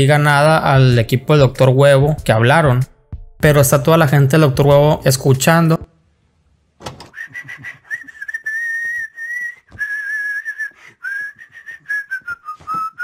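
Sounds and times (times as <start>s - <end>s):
man whistling a tune: 7.1s - 13.0s.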